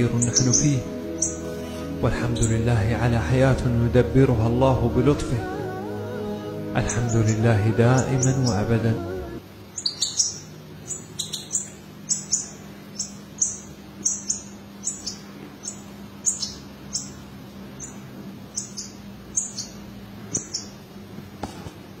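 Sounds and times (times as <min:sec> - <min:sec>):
birds chirping high: 0:00.0 - 0:21.2
faint steady hum: 0:00.0 - 0:22.0.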